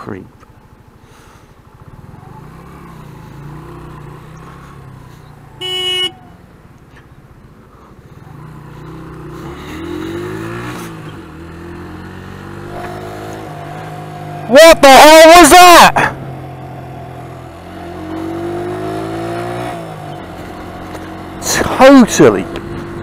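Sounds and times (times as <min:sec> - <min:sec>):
motorcycle engine revving: 0:01.7 - 0:06.3, 0:08.2 - 0:23.0
vehicle horn beep: 0:05.6 - 0:06.2.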